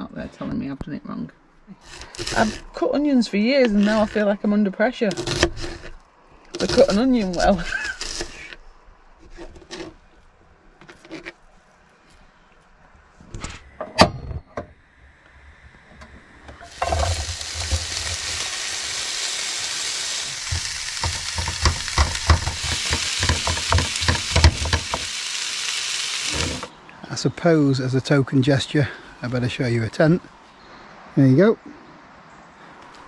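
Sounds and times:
onions sizzling in pan: 0:16.6 - 0:26.7
knocks: 0:20.5 - 0:25.1
utensil clicking while stirring: 0:20.5 - 0:25.1.

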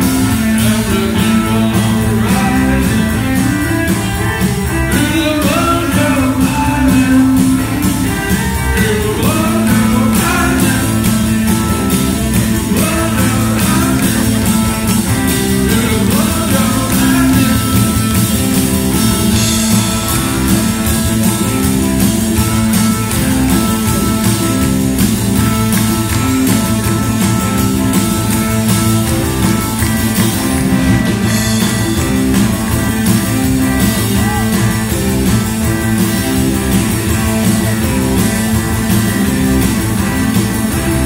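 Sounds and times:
drums: 0:00.0 - 0:41.0
repeating bass line: 0:00.0 - 0:41.0
rock band playing live: 0:00.0 - 0:41.0.

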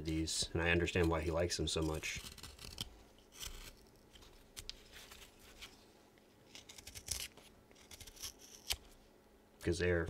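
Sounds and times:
carving gouge scraping wood: 0:01.7 - 0:03.8, 0:06.5 - 0:08.8.

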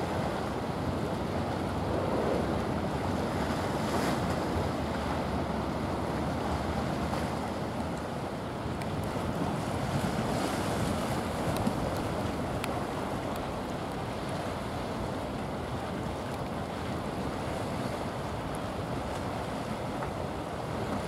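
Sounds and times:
wind noise on microphone: 0:00.0 - 0:07.8
sea waves: 0:00.0 - 0:21.0.

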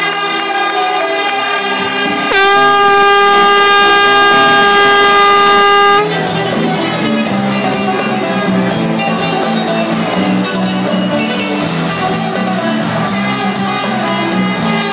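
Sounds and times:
live music: 0:00.0 - 0:14.9
loud horn-like tone: 0:02.0 - 0:06.1.

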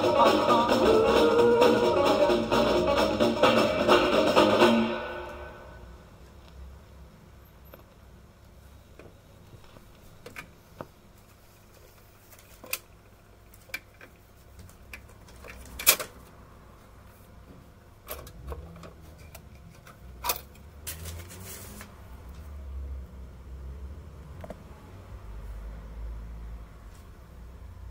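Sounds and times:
low hum: 0:00.0 - 0:06.2.

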